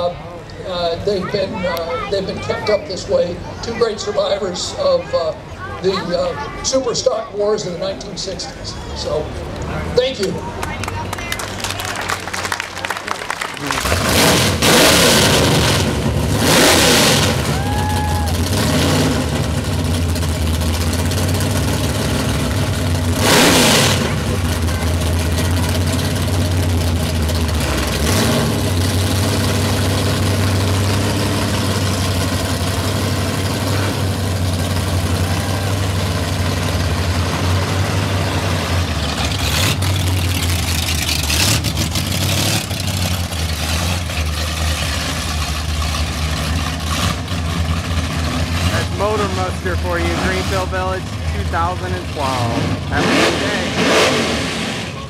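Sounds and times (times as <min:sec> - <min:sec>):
car engines running at low speed: 0:00.0 - 0:55.0
loud engine burst: 0:13.6 - 0:55.0.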